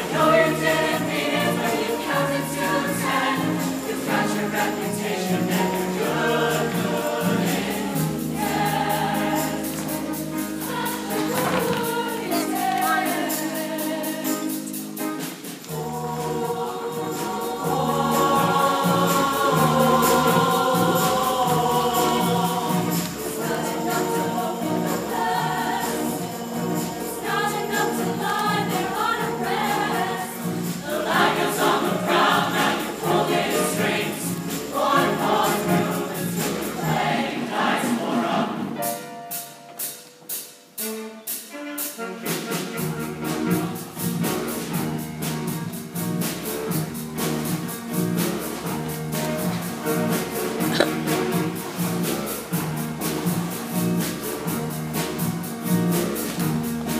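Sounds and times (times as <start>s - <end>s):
steady beat: 0.0s - 37.9s
mixed choir singing: 0.0s - 39.6s, 41.4s - 56.9s.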